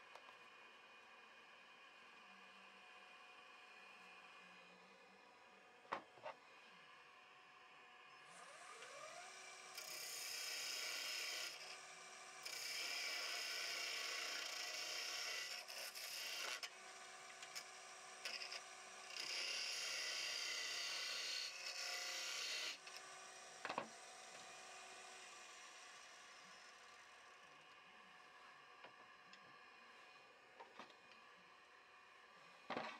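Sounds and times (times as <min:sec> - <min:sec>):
wood lathe motor whine: 0:07.7 - 0:31.8.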